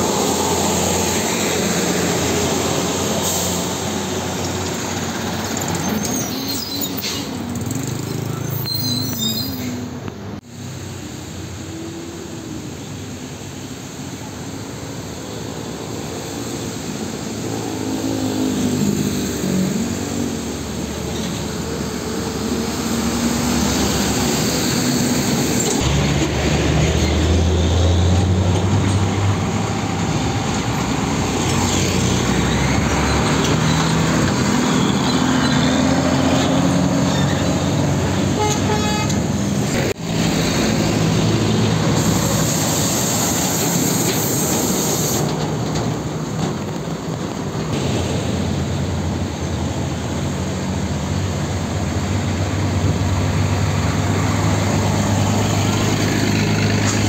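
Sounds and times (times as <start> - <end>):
road traffic: 0.0 - 57.0
vehicle horn tooting: 38.4 - 39.2.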